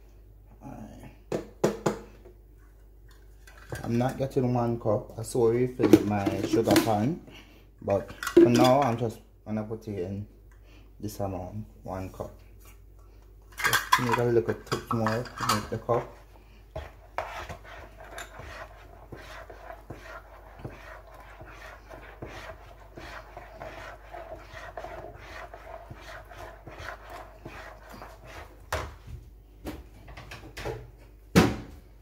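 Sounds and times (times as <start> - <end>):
spoon stirring batter in a bowl: 3.1 - 4.4, 7.9 - 9.1, 12.2 - 29.1.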